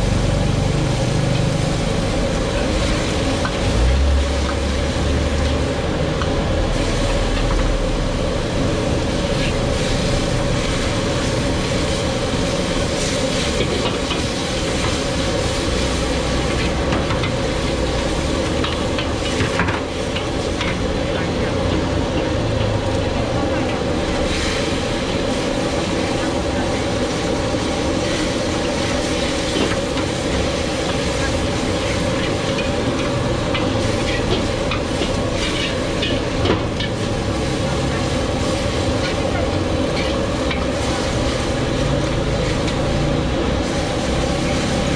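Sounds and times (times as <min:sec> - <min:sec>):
noodles sizzling in a wok: 0:00.0 - 0:44.9
steady rushing noise: 0:00.0 - 0:44.9
metal ladle scraping a wok: 0:29.8 - 0:37.5, 0:38.2 - 0:41.2.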